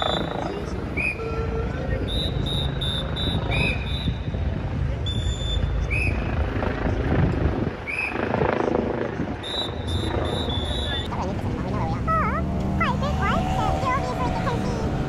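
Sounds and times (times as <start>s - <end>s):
city street noise: 0.0s - 15.0s
helicopter rotor rumble: 0.0s - 15.0s
short high whistle blasts: 1.0s - 4.3s, 5.0s - 6.2s.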